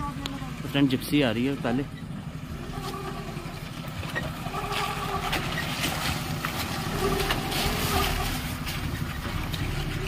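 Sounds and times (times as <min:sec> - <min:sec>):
vehicle engine running: 0:00.0 - 0:10.0
stones crunching under tyres: 0:03.8 - 0:10.0.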